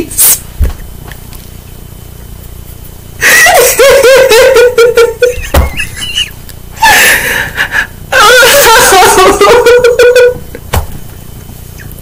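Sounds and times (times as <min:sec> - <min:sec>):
woman laughing hard: 0:03.2 - 0:10.6.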